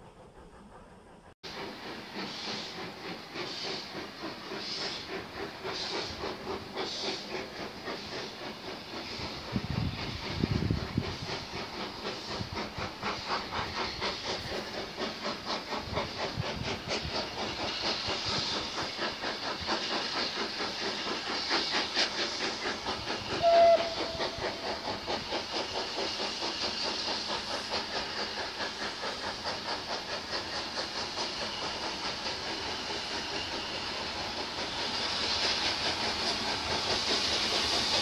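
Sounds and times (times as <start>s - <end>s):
steam hissing: 0.0s - 38.0s
steam locomotive chuffing: 0.0s - 38.0s
train whistle blast: 23.3s - 24.7s.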